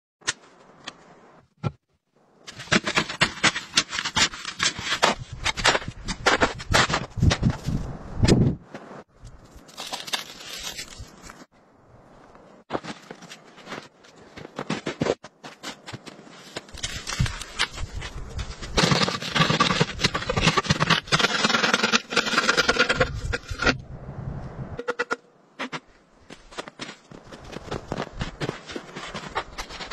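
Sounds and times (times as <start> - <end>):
crunching snow and branches: 2.4 - 23.8, 25.6 - 29.9
shovel crunching into snow: 9.6 - 11.5
metal pipe scraping into snow: 16.7 - 23.8.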